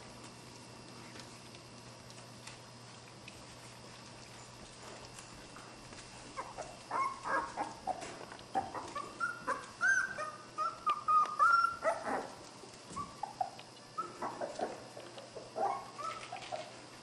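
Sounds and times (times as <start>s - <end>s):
puppies yipping: 6.3s - 16.8s
puppy drawn-out cries: 6.4s - 8.0s, 8.6s - 12.3s.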